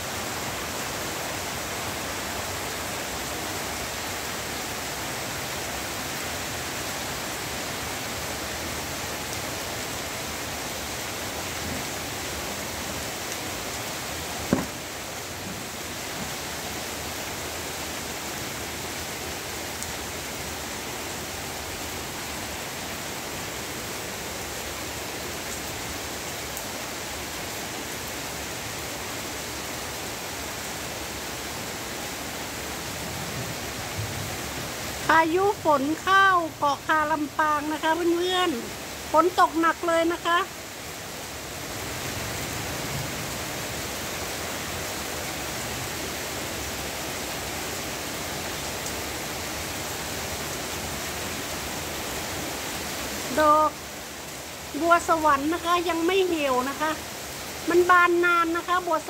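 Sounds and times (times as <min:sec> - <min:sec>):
heavy rain pouring: 0:00.0 - 0:59.0
sharp knock: 0:14.5 - 0:14.8.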